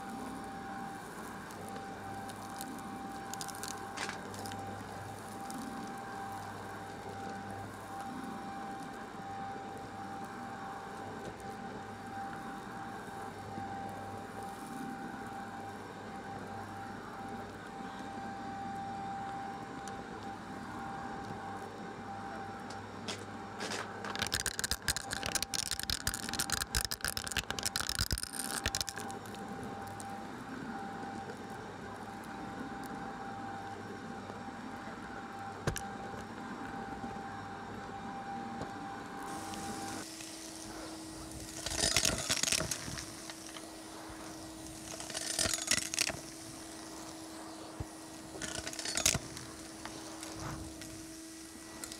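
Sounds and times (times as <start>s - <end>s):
cylinder vacuum humming: 0.0s - 51.9s
upright vacuum whining: 0.0s - 51.9s
debris rattling up hose: 2.2s - 4.6s, 23.6s - 30.0s, 39.3s - 47.2s, 48.1s - 51.9s
debris crackling and rattling: 24.0s - 30.0s, 41.3s - 43.7s, 44.6s - 46.8s, 48.3s - 51.0s.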